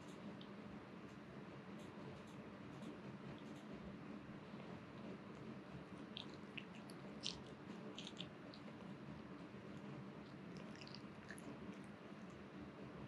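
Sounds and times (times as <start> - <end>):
dog licking lips: 6.1 - 8.8.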